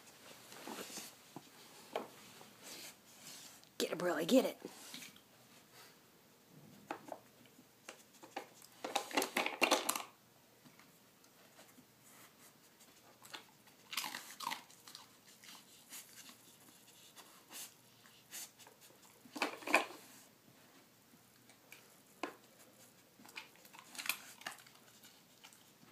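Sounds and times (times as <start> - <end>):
dog crunching treats: 8.3 - 10.2, 13.2 - 15.6, 23.2 - 25.8
plastic puzzle clattering: 8.8 - 10.1.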